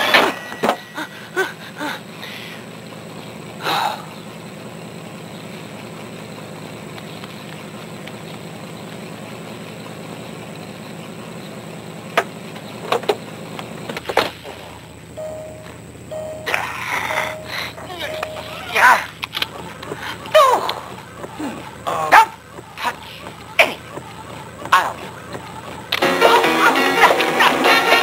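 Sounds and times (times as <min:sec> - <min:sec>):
cartoon car engine idling: 0:00.0 - 0:28.0
engine burst: 0:09.1 - 0:28.0.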